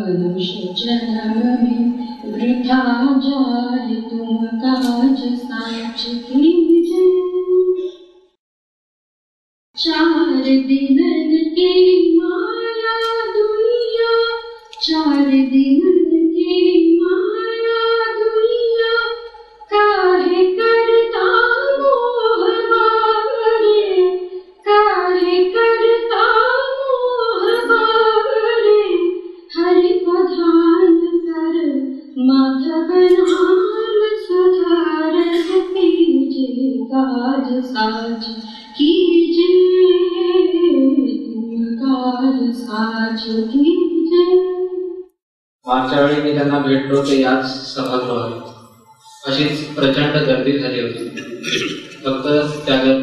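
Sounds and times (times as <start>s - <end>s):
woman singing into a microphone: 0.0s - 7.9s, 9.8s - 44.8s.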